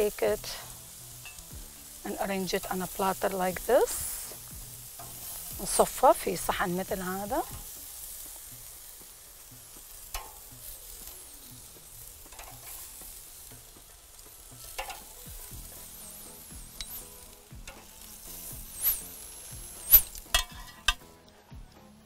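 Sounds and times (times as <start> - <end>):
meat sizzling on a grill: 0.0 - 21.7
metal tongs clicking: 1.2 - 1.5, 10.0 - 10.5, 12.3 - 12.8, 14.6 - 15.2, 16.8 - 17.9.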